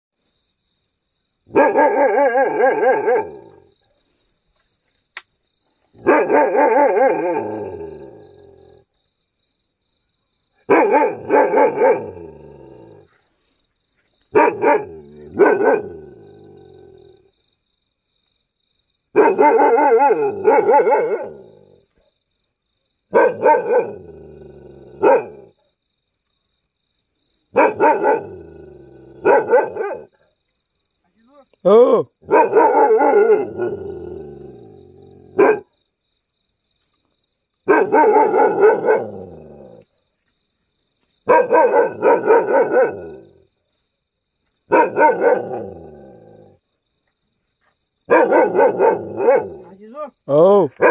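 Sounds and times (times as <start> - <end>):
dog barking: 1.5 - 3.7, 6.0 - 8.1, 10.6 - 13.0, 14.3 - 16.2, 19.1 - 22.1, 23.1 - 24.2, 24.9 - 25.7, 27.5 - 30.3, 32.2 - 34.0, 35.1 - 35.8, 37.6 - 39.8, 41.2 - 43.4, 44.7 - 46.6, 48.1 - 49.8.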